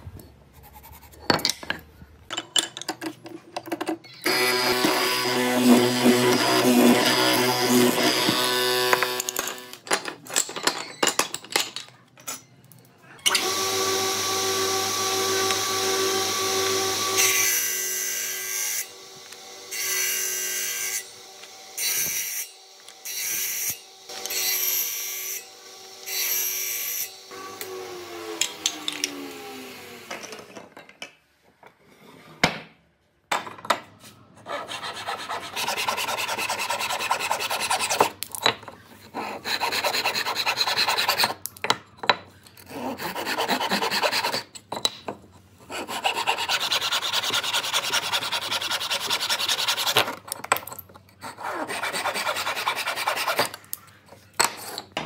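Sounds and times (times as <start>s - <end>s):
board cutting on spinning disc: 4.3s - 9.2s
woodworking machine motor running: 13.3s - 17.2s
hand saw rasping through wood: 34.5s - 38.1s, 39.1s - 41.4s, 42.7s - 44.5s, 45.7s - 50.1s, 51.2s - 53.5s.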